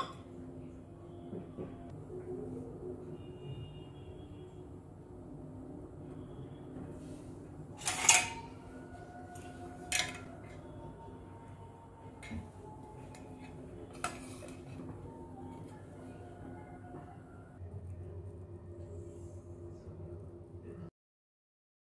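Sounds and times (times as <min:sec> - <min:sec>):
low background hum: 0:00.0 - 0:20.9
pan and utensils clattering: 0:07.8 - 0:08.5.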